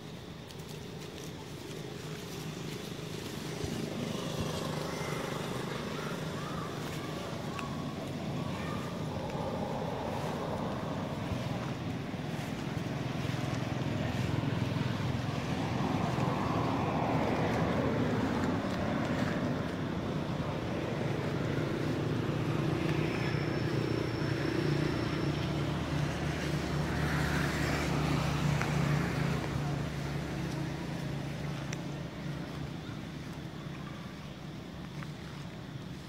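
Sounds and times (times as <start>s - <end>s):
motor engine humming: 0.0s - 36.0s.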